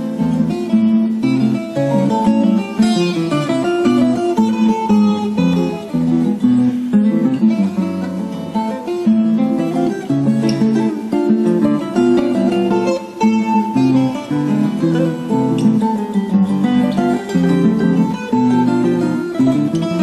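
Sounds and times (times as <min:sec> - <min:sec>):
acoustic guitar: 0:00.0 - 0:20.0
small plucked string instrument: 0:00.0 - 0:20.0.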